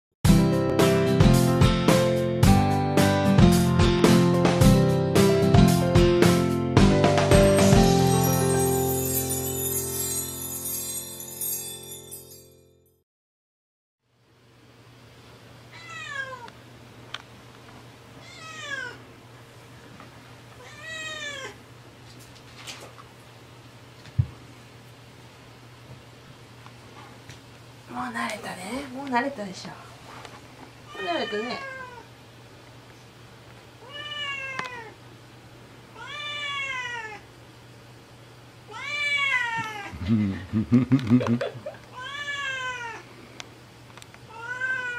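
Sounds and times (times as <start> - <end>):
cat meowing: 15.7 - 16.5, 18.2 - 19.0, 20.6 - 21.6, 30.9 - 32.1, 33.8 - 35.0, 36.0 - 37.2, 38.7 - 39.9, 42.0 - 43.0, 44.3 - 44.9.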